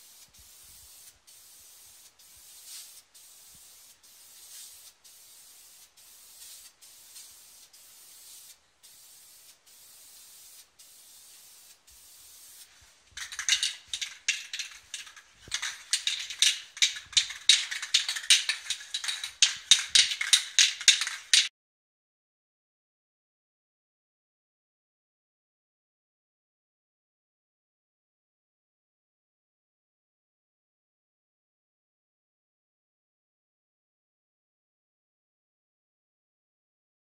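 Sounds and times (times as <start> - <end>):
spray can hissing: 0.0 - 21.5.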